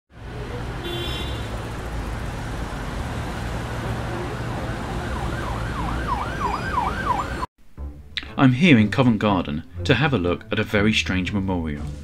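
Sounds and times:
road traffic rumble: 0.1s - 7.5s
emergency vehicle siren: 2.6s - 7.5s.

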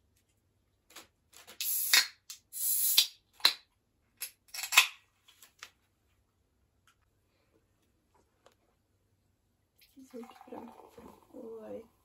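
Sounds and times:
can tabs cracking: 1.5s - 3.6s
gas hissing: 1.6s - 3.1s.

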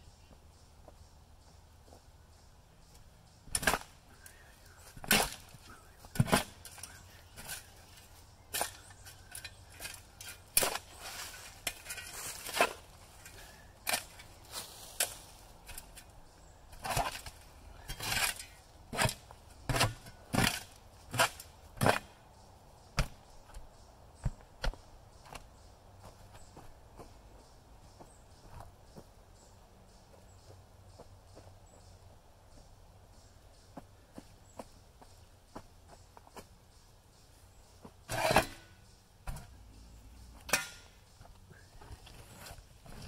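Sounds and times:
shovel scraping dirt: 3.5s - 4.0s, 4.8s - 16.1s, 16.7s - 22.2s, 37.8s - 39.6s, 40.3s - 41.0s.

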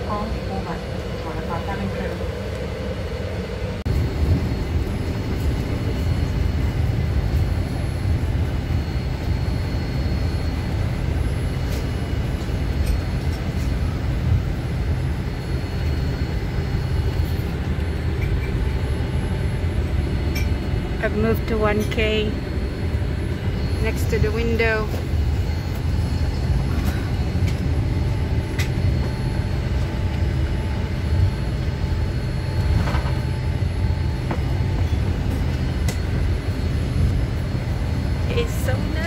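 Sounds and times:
airliner cabin rumble: 0.0s - 39.0s
faint whines: 0.0s - 39.0s.

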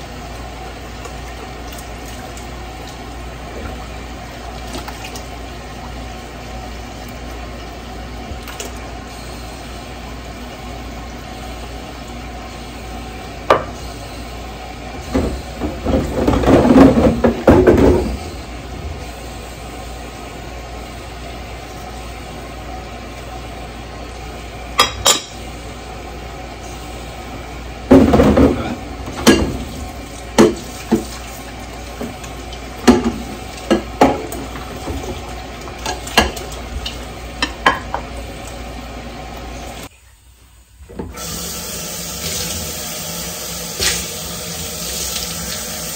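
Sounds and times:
steady background hum: 0.0s - 45.9s
dishes clinking and clattering: 15.0s - 18.2s, 24.8s - 25.4s, 35.8s - 38.1s.

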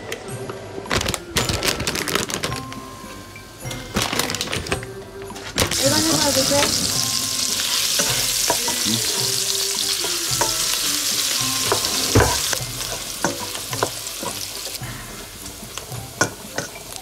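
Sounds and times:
bacon sizzling in oil: 5.7s - 17.0s.

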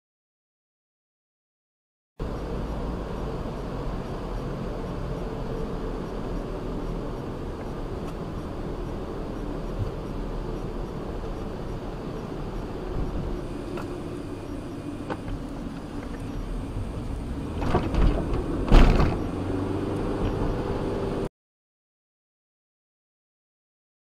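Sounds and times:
car engine and tyres rumbling: 2.2s - 21.3s
knocks and rattles: 17.6s - 19.3s.

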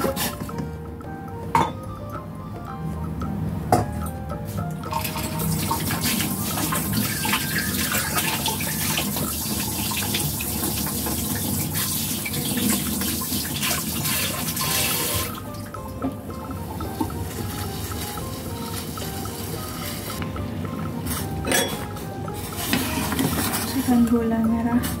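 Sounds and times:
quiet background music: 0.0s - 25.0s
water running from a tap: 4.8s - 20.2s, 22.4s - 25.0s.

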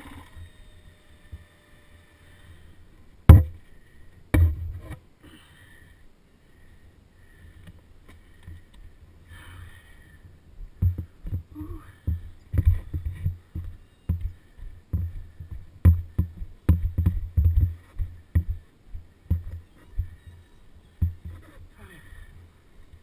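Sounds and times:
dirt bike engine hum: 10.8s - 22.4s.

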